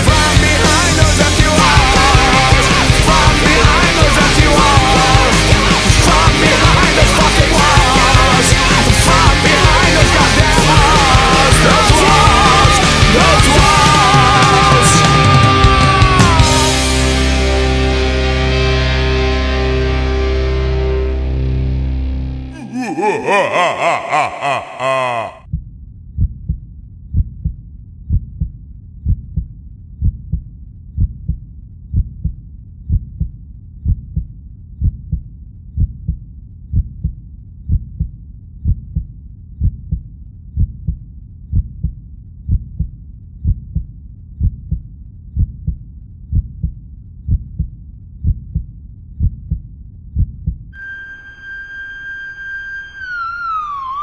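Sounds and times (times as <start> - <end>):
heartbeat thumps: 26.2 - 50.7
drawn-out scream-like sound: 50.8 - 54.0
steady electronic tone: 50.8 - 54.0.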